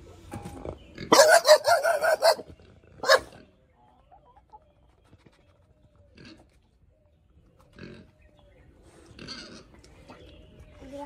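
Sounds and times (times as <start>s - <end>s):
dog barking: 1.1s - 3.4s.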